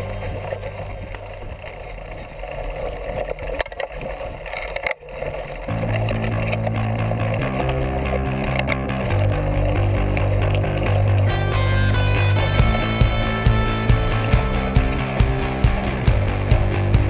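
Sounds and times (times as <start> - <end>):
bike tyres on dirt trail: 0.0 - 17.0
guitar background music: 5.7 - 17.0.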